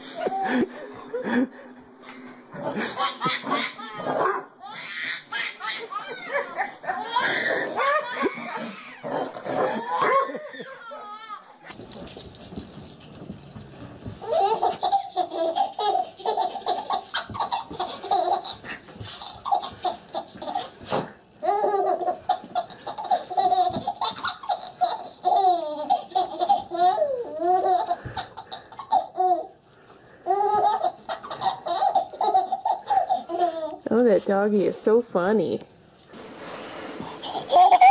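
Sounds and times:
baby laughing: 0:02.6 - 0:11.5, 0:14.2 - 0:29.6, 0:30.2 - 0:33.8, 0:37.1 - 0:37.9.

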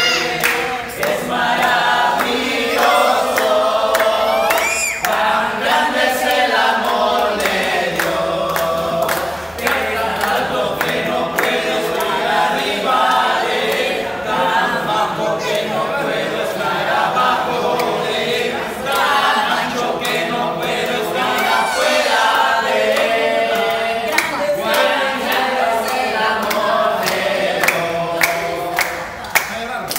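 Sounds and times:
group singing unaccompanied: 0:00.0 - 0:29.5
hand clapping: 0:00.1 - 0:12.2, 0:18.8 - 0:21.6, 0:22.3 - 0:29.9.

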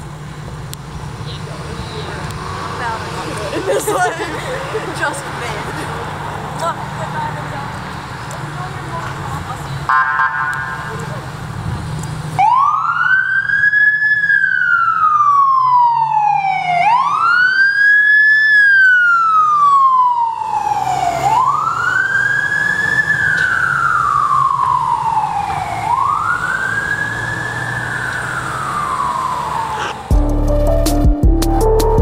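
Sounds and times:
fire engine siren wailing: 0:09.9 - 0:30.8.

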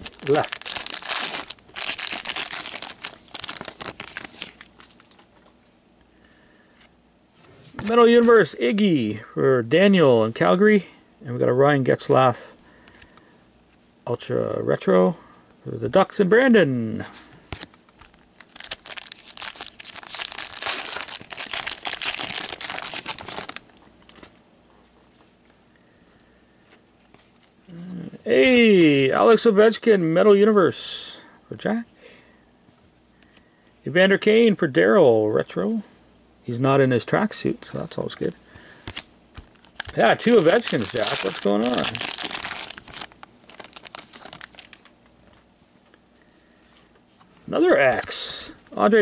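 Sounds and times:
plastic wrapper tearing and crinkling: 0:00.0 - 0:05.2, 0:18.3 - 0:23.6, 0:38.9 - 0:45.0.

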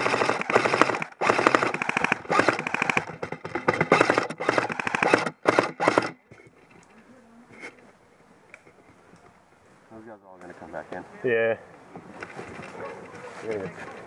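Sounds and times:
airsoft guns full-auto bursts: 0:00.0 - 0:06.2.

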